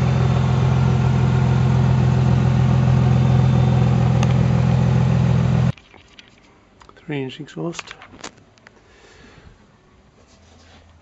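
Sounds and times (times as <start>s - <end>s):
car engine idling: 0.0s - 5.7s.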